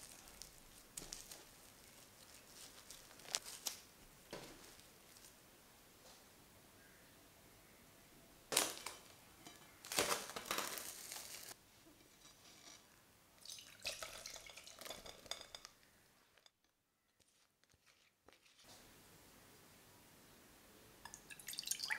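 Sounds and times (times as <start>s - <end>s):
crackly rustling of apple slices: 0.0s - 5.4s, 8.5s - 12.9s
glass bowl and strainer clattering: 13.5s - 15.8s.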